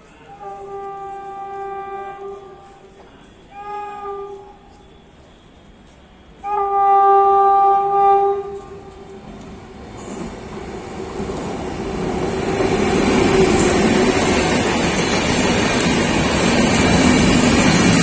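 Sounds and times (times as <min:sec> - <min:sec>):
train rumble and wheel noise: 0:00.0 - 0:18.0
train horn blast: 0:00.1 - 0:05.3, 0:06.3 - 0:09.2.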